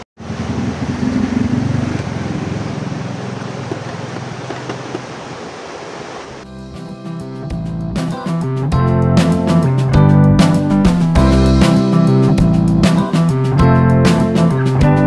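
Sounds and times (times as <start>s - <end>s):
guitar music: 6.5s - 15.0s.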